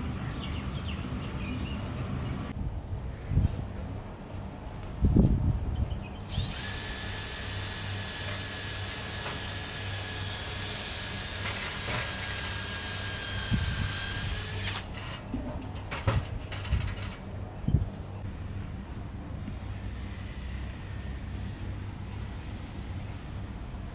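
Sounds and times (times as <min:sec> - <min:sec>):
electric power drill whining: 0:06.3 - 0:14.9.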